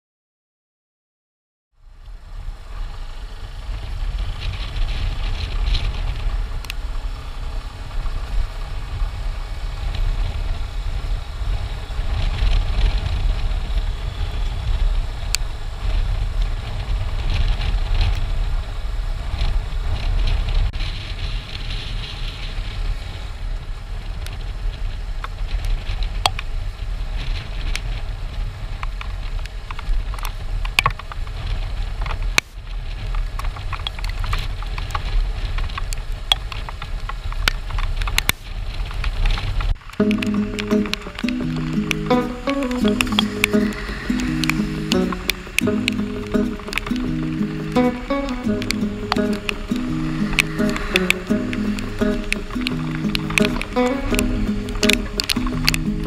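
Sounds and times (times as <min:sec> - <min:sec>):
wind on the microphone: 0:02.0 - 0:56.0
small sharp clicks: 0:39.3 - 0:56.0.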